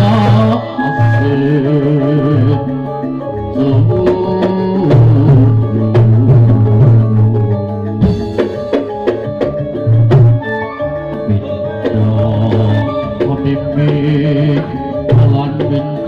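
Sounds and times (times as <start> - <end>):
held melody notes: 0.0 - 16.0
steady bass: 0.0 - 16.0
drum strikes: 3.6 - 16.0.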